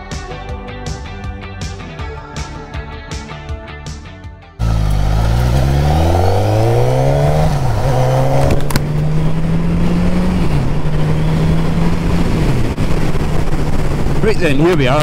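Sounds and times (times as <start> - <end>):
motorcycle engine accelerating: 4.6 - 15.0.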